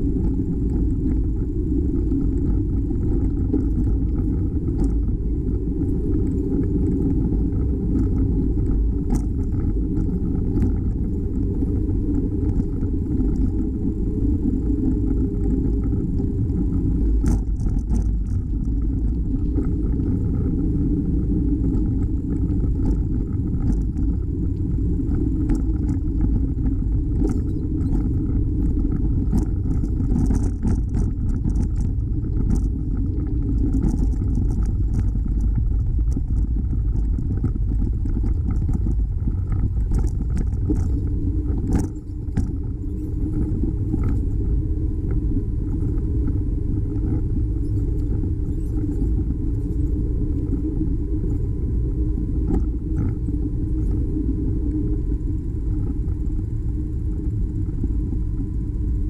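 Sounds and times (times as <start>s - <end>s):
wind and tyre rumble: 0.0s - 59.0s
bicycle clicks and rattles: 17.0s - 20.6s, 21.7s - 44.5s.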